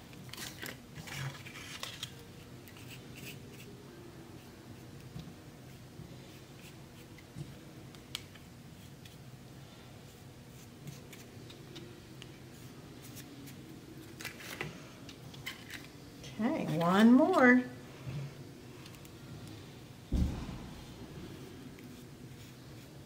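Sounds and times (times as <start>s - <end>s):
low room hum: 0.0s - 23.0s
paintbrush scratchy strokes: 21.3s - 23.0s.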